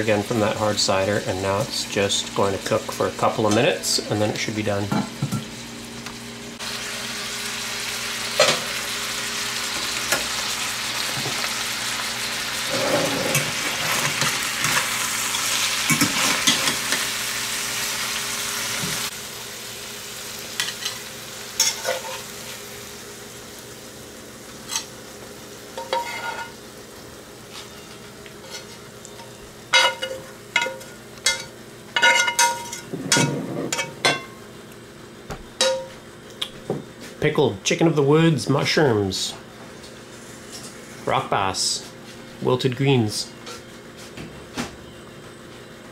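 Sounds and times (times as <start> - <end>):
food sizzling in a skillet: 0.2 - 32.9
metal spoon scraping iron pan: 25.8 - 26.5.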